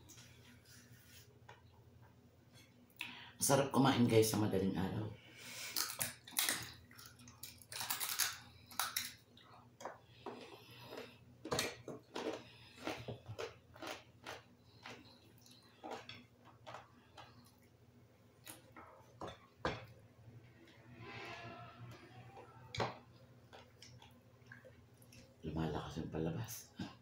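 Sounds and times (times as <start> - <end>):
crisp crunching while chewing: 5.8 - 9.2, 10.1 - 17.6.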